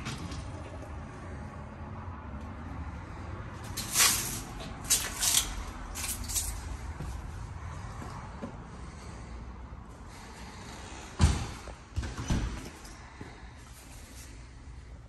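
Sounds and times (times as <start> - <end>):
metal gate scraping and rattling: 3.6 - 6.7.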